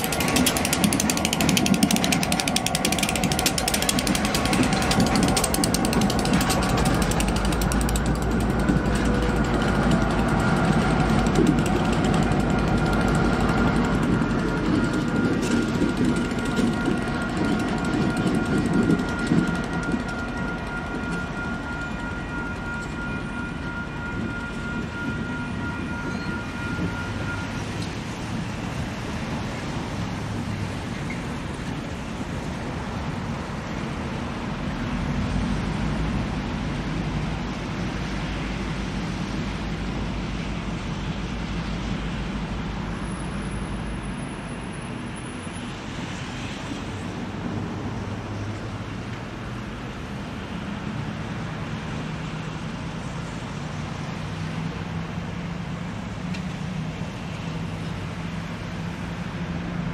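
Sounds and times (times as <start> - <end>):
faint steady tones: 0.0 - 28.8
diesel train rumbling by: 0.0 - 59.9.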